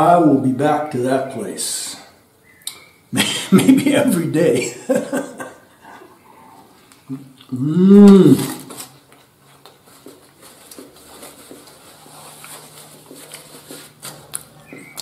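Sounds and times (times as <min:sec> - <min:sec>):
man chewing: 0:05.8 - 0:15.0
paper napkin rustling: 0:08.4 - 0:15.0.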